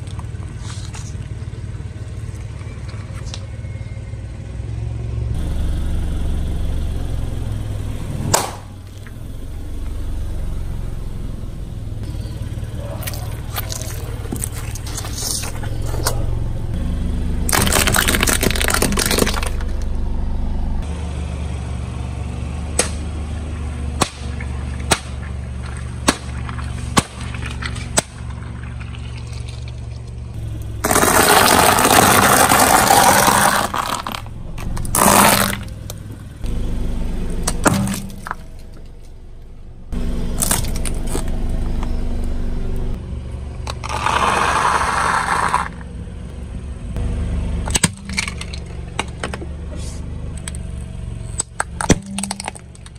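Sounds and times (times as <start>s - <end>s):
car engine running low: 0.0s - 52.9s
crunching squishing water beads: 13.0s - 16.1s, 17.5s - 19.7s, 24.3s - 35.8s, 51.6s - 52.9s
tyre crushing objects: 17.5s - 19.8s, 24.0s - 30.1s, 30.8s - 35.8s, 37.4s - 38.5s
sharp cracks and pops: 17.5s - 19.9s, 24.0s - 36.0s, 40.4s - 42.3s, 51.3s - 52.9s.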